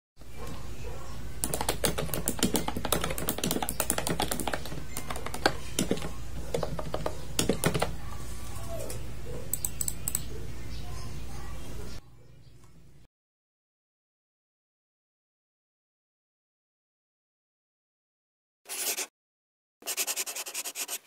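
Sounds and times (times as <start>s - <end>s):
typing on computer keyboard: 1.4s - 8.0s, 9.5s - 10.3s.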